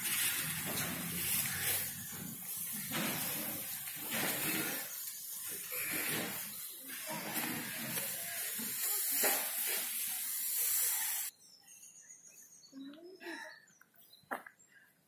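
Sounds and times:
loud steady hiss: 0.0 - 11.3
faint scattered sounds: 0.0 - 11.7.

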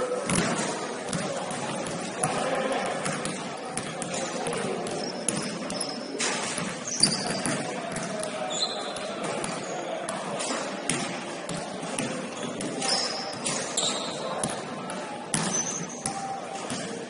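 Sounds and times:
voices echoing in hall: 0.0 - 17.0
basketball bouncing on gym floor: 0.3 - 5.9, 6.5 - 10.2, 10.9 - 16.9
shoe squeaks: 4.9 - 6.2, 6.8 - 7.6, 8.4 - 9.9, 12.3 - 14.3, 15.4 - 16.0.

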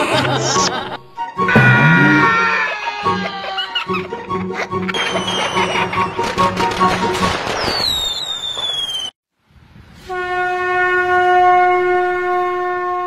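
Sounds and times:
fireworks crackling and whistling: 5.0 - 9.2
conch shell blown: 10.1 - 13.0.

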